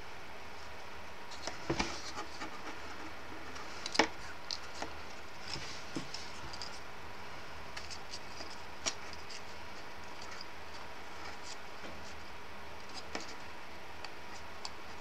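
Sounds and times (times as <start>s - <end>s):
paper rustling and scratching: 1.3s - 6.9s, 7.7s - 13.5s.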